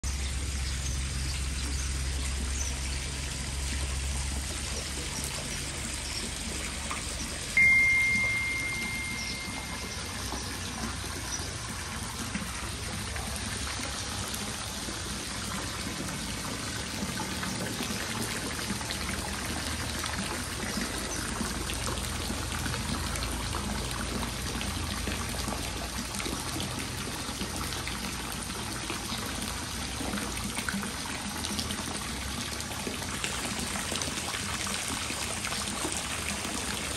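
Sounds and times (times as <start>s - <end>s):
water pouring into a pond: 0.0s - 36.9s
high-pitched tone: 7.6s - 10.4s.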